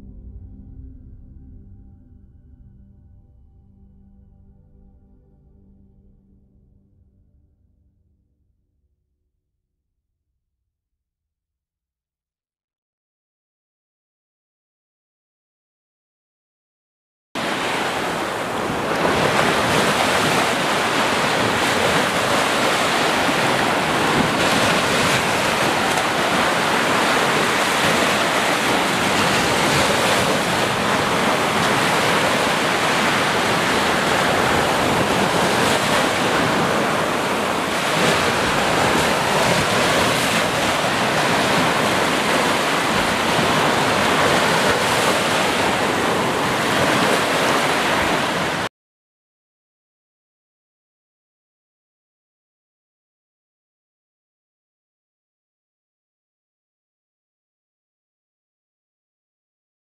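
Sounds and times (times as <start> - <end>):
waves breaking on shore: 17.4 - 48.7.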